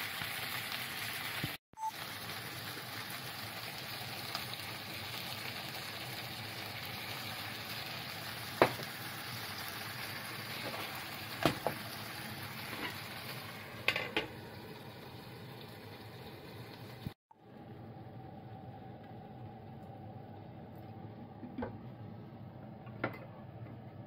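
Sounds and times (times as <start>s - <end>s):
fish sizzling in a frying pan: 0.0s - 17.2s.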